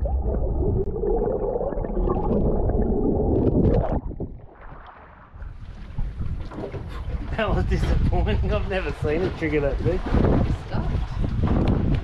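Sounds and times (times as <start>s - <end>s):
muffled underwater rushing water: 0.0s - 12.0s
wind: 3.3s - 12.0s
water lapping: 4.3s - 12.0s.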